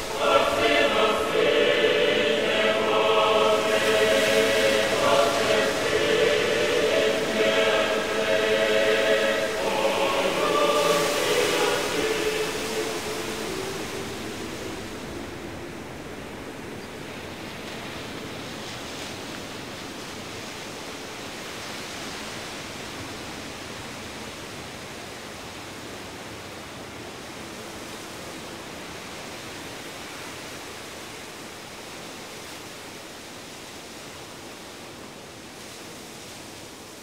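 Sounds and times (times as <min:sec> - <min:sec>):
steady rushing noise: 0:00.0 - 0:26.8.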